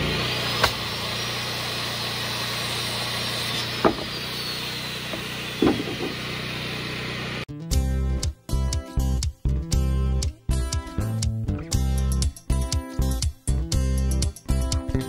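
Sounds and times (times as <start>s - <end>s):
small engine running: 0.0s - 7.5s
hammer nailing into wood: 3.8s - 4.1s, 5.1s - 6.2s.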